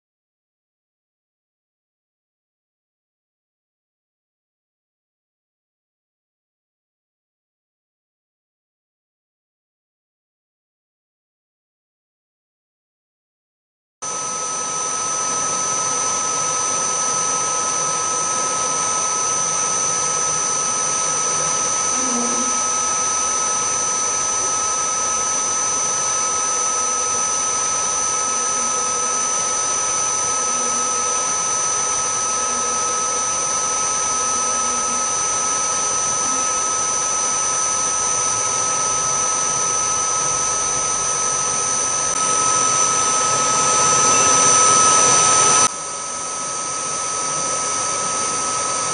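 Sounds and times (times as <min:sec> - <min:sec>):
milling machine spindle whine: 0:14.0 - 0:48.9.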